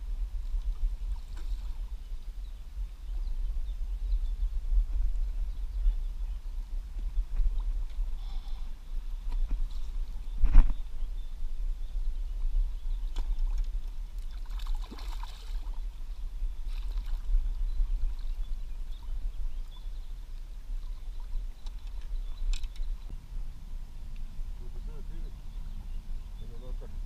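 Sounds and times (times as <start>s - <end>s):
water splashing and sloshing: 12.8s - 23.1s
low rumble: 22.2s - 27.0s.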